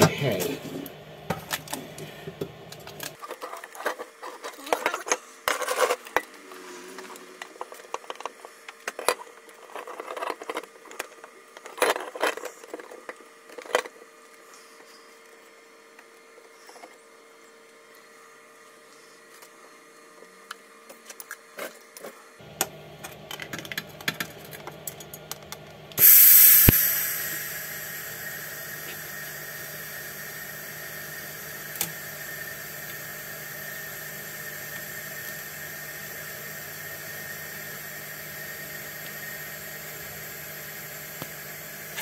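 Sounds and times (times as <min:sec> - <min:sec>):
welding arc hissing and buzzing: 0:26.0 - 0:42.0.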